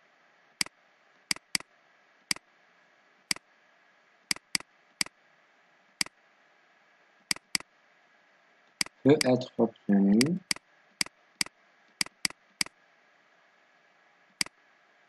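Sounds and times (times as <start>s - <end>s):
faint steady hiss: 0.0s - 15.0s
pointing device clicks: 1.3s - 1.6s, 4.3s - 5.1s, 7.3s - 7.6s, 10.2s - 12.7s.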